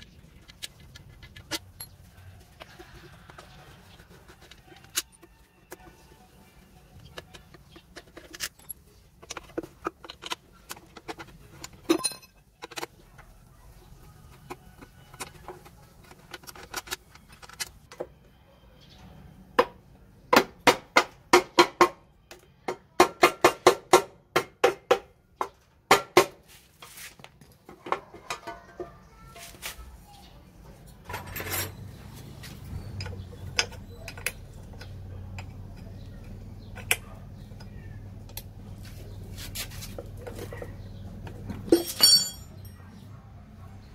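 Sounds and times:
hand tools knocking on metal: 0:41.6 - 0:42.8.

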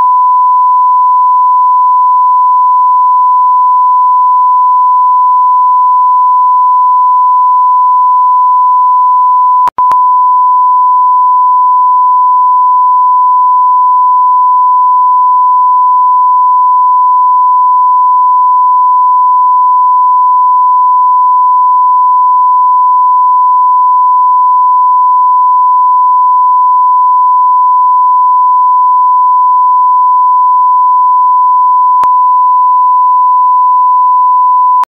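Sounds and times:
electronic sine tone: 0:00.0 - 0:34.9
click: 0:09.6 - 0:10.0.

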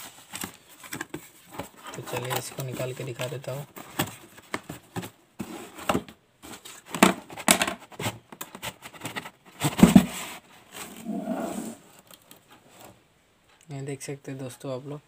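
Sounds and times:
cardboard box scraping and rustling: 0:09.6 - 0:12.0.

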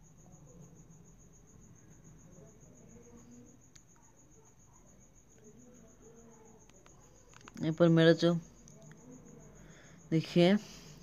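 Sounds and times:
faint clicks: 0:06.6 - 0:07.7.

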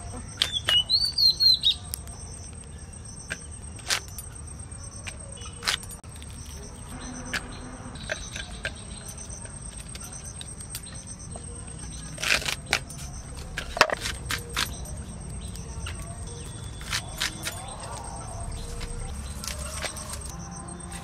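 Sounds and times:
plant stalks snapping: 0:12.1 - 0:20.4.

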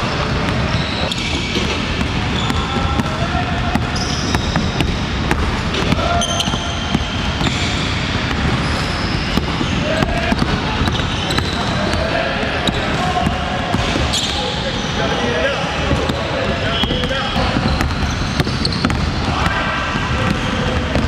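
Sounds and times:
sneaker squeaks: 0:00.0 - 0:21.0
basketball bouncing on wood floor: 0:00.3 - 0:12.0, 0:15.9 - 0:21.0
background chatter: 0:08.7 - 0:18.4.

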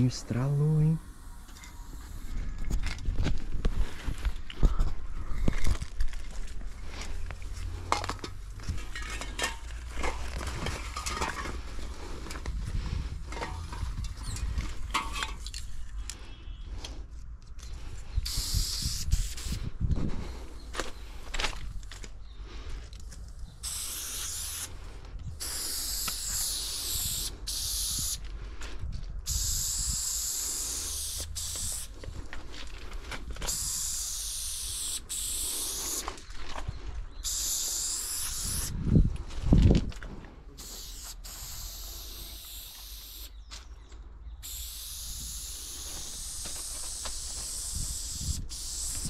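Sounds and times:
spray paint can hissing: 0:00.9 - 0:02.4, 0:18.2 - 0:19.7, 0:23.6 - 0:28.2, 0:29.3 - 0:32.0, 0:33.4 - 0:36.1, 0:37.2 - 0:38.8, 0:40.6 - 0:43.4, 0:44.4 - 0:49.0.

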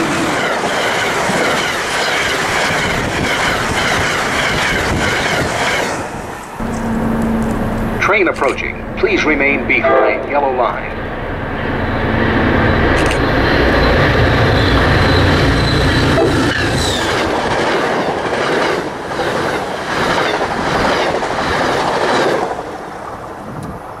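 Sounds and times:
train rumble: 0:00.0 - 0:24.0
high whine: 0:06.6 - 0:17.1
wheels clacking over rail joints: 0:12.8 - 0:22.8.

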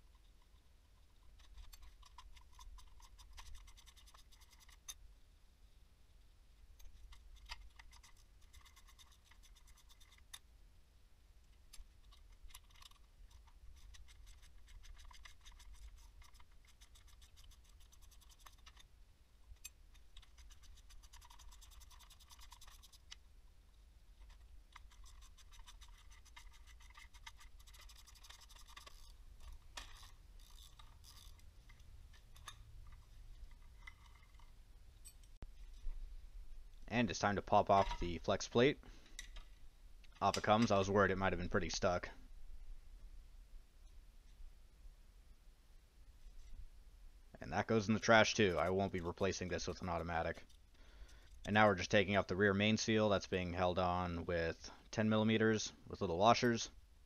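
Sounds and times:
rapid ratchet clicks: 0:11.8 - 0:18.9, 0:19.6 - 0:23.2, 0:24.2 - 0:31.4.

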